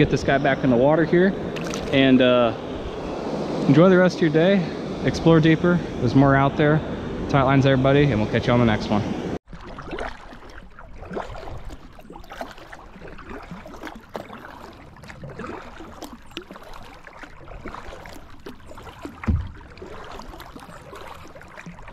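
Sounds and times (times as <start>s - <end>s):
water lapping and trickling: 0.0s - 3.1s, 9.4s - 21.9s
dull low thump: 19.1s - 19.8s.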